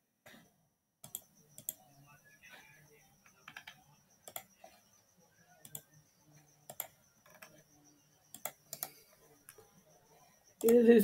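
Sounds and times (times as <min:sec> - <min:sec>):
computer mouse and keyboard clicks: 0:01.0 - 0:01.8, 0:03.2 - 0:04.8, 0:05.6 - 0:06.0, 0:06.6 - 0:07.6, 0:08.3 - 0:09.7, 0:10.6 - 0:10.9.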